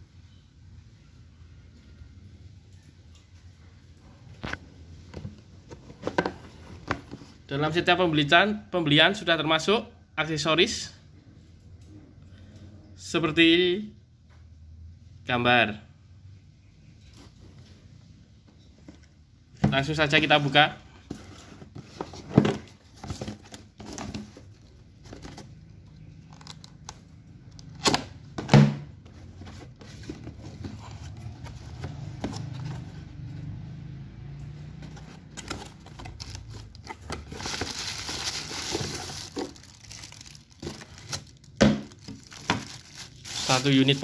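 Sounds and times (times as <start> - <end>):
cardboard box being opened: 34.8 - 41.3
plastic bag rustling: 35.1 - 44.0.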